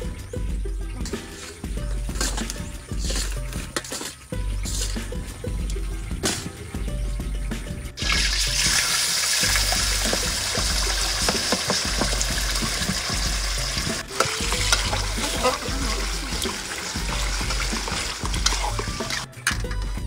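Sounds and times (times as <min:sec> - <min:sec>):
background music with low beat: 0:00.0 - 0:20.0
stirring clatter: 0:00.8 - 0:06.6, 0:07.5 - 0:20.0
sauce sizzling in hot oil: 0:08.0 - 0:19.3.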